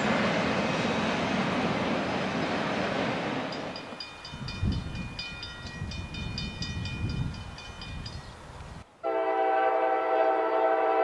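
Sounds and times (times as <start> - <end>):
railroad crossing bell ringing: 3.5 - 8.4.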